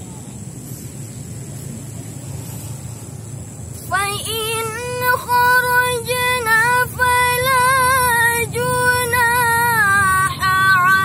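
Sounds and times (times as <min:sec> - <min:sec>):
woman reciting melodically: 0:03.8 - 0:11.0.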